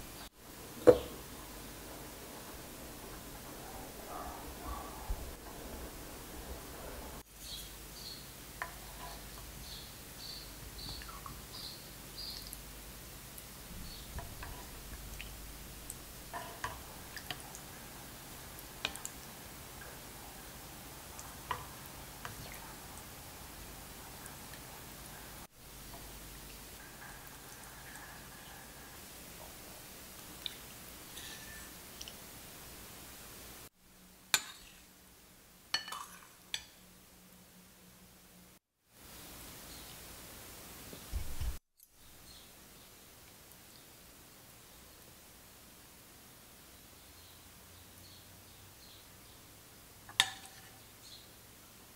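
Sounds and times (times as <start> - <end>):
faint steady hiss: 0.0 - 51.9
spoon clinking on ceramic bowl: 31.1 - 31.7, 35.8 - 36.7.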